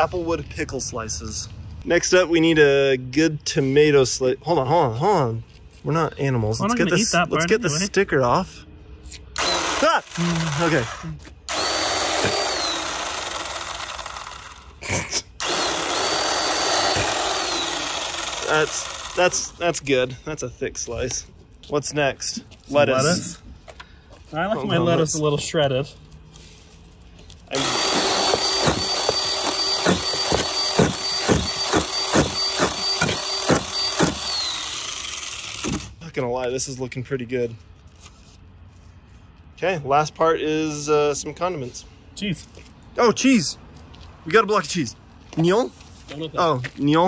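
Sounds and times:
chainsaw chopping lettuce: 9.4s - 14.6s, 15.4s - 19.6s, 27.6s - 35.9s
electric chainsaw whining: 9.4s - 14.8s, 15.4s - 19.6s, 27.5s - 36.0s.

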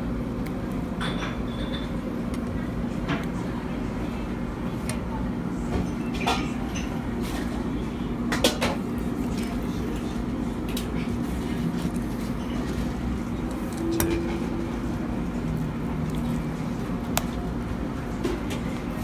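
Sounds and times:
low background hum and hiss: 0.0s - 19.0s.

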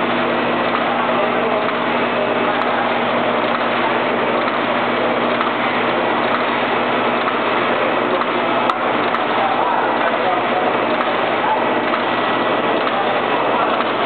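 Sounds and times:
wrapping machine running: 0.0s - 14.0s
sharp machine click: 6.2s - 6.6s.

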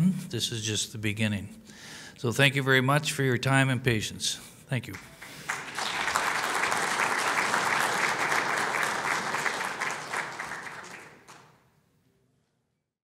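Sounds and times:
audience applauding: 5.0s - 11.6s.

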